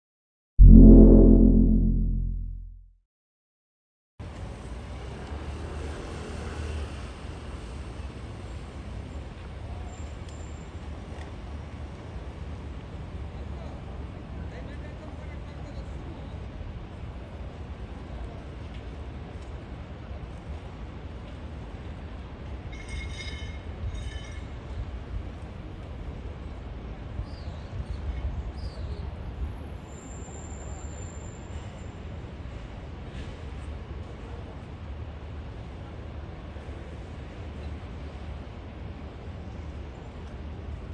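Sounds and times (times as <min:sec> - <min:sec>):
short gliding chirps: 0:00.6 - 0:02.8
traffic noise with low rumble: 0:04.9 - 0:40.9.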